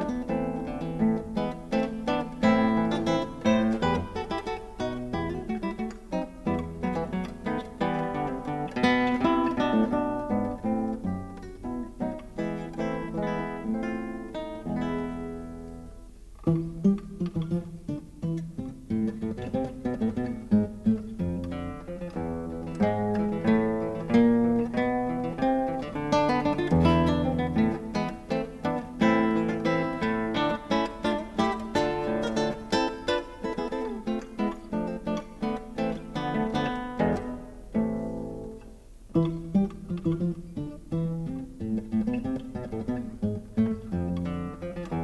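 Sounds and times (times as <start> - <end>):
acoustic guitar plucked notes: 0.0 - 45.0.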